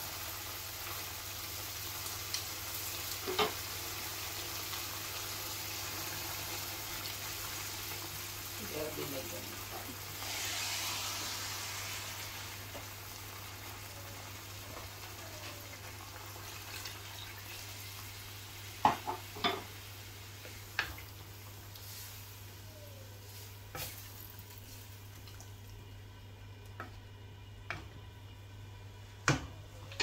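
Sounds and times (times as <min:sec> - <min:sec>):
gas stove hiss: 0:00.0 - 0:25.4.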